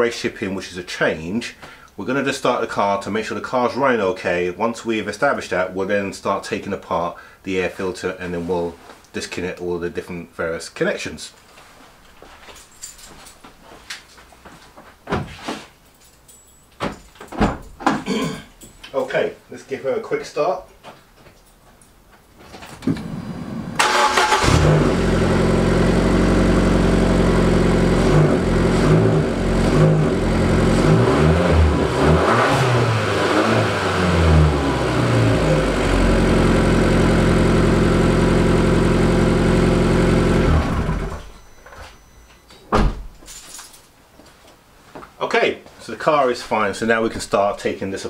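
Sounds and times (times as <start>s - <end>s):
car engine starting and revving: 23.0s - 41.3s
thump: 42.7s - 43.2s.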